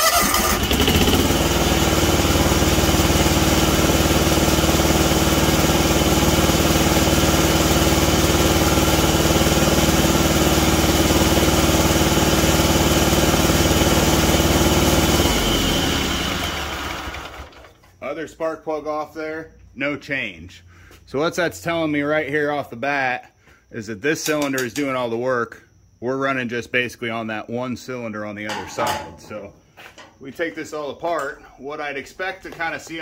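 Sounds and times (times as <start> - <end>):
mower engine running unevenly: 0.1 - 17.7.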